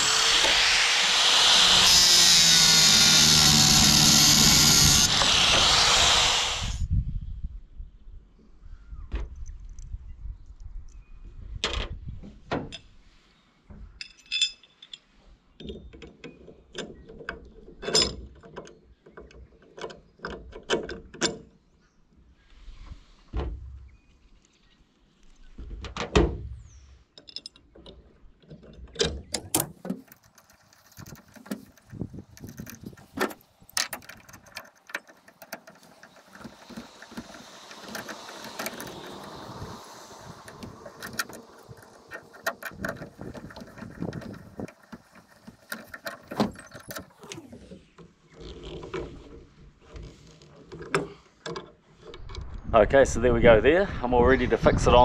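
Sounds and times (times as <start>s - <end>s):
hand tools clinking on metal: 14.0s - 15.1s
socket wrench working bolts: 27.2s - 47.8s.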